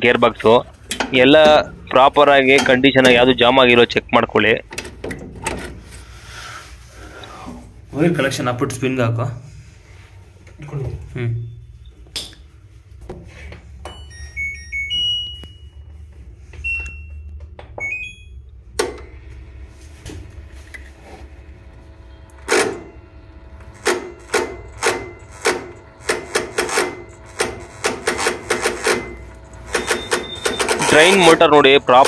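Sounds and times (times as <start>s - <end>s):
low steady hum: 0.0s - 26.4s
washing machine control panel beeping: 13.8s - 16.0s, 16.6s - 19.3s, 21.6s - 32.0s.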